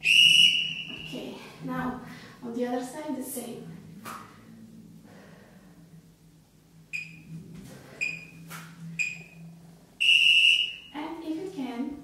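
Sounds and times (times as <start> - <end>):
interval timer beeps: 6.9 - 7.3, 8.0 - 8.4, 9.0 - 9.4.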